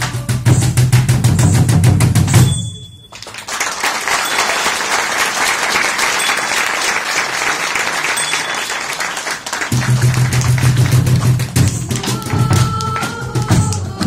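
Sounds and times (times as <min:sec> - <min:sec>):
audience applauding: 0:03.1 - 0:14.0.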